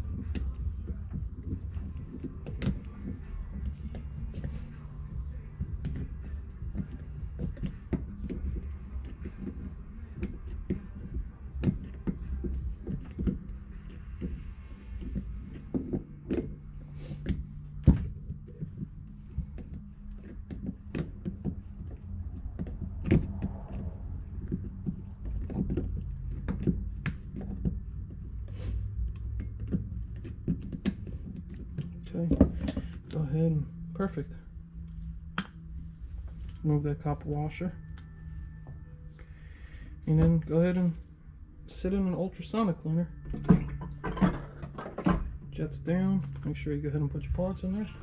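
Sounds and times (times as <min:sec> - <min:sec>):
steady low hum: 0:00.0 - 0:48.0
metal parts clicking and clunking: 0:43.2 - 0:46.6.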